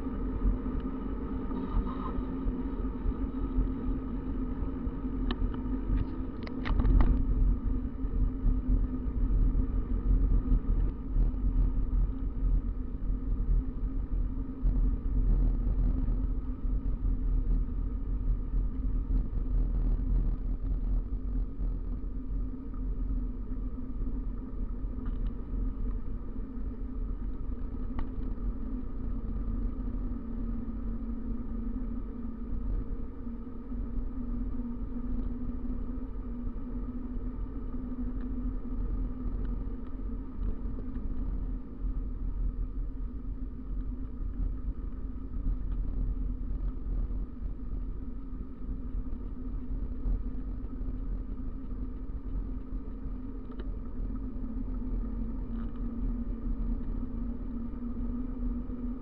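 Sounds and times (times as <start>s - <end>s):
bicycle tyre noise on asphalt: 0.0s - 59.0s
wind rumble on microphone: 0.0s - 59.0s
faint clicks: 50.9s - 53.8s.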